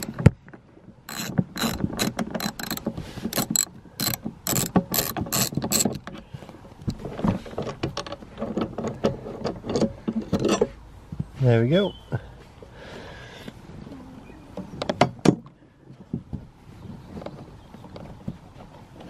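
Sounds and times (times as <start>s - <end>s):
socket ratchet clicking: 1.1s - 6.1s.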